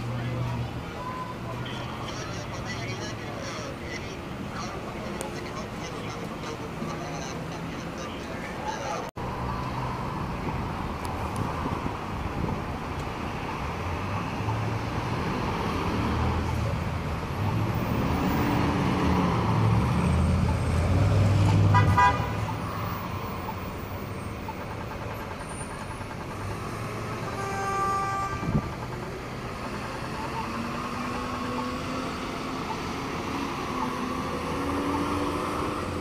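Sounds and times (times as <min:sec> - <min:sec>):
passing car rumble: 0:00.0 - 0:36.0
car horn toot: 0:21.5 - 0:22.6, 0:27.2 - 0:28.7.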